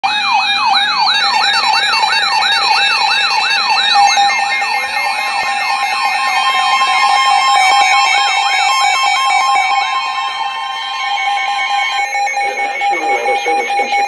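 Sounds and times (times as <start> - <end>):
weather radio siren sweeping tone: 0.0 - 14.0
steady electronic tone: 11.8 - 14.0.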